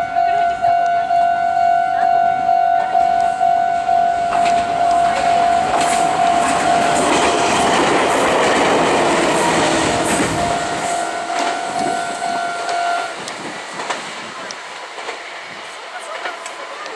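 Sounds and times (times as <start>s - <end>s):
crossing warning bell ringing: 0.0s - 13.3s
electric train wheel and rail noise: 0.0s - 16.9s.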